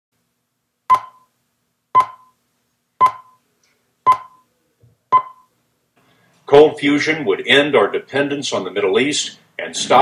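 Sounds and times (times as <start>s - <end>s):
countdown beeps: 0.9s - 1.3s, 2.0s - 2.4s, 3.0s - 3.4s, 4.1s - 4.5s, 5.1s - 5.5s.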